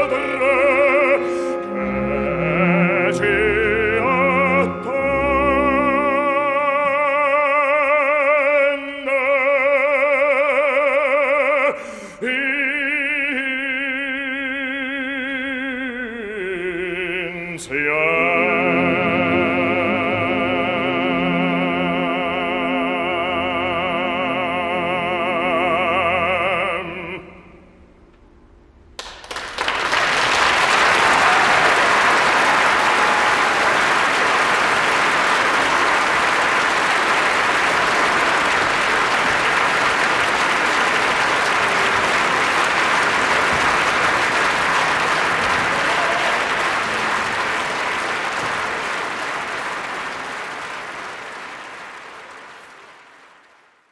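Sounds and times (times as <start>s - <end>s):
audience applauding: 29.0s - 53.9s.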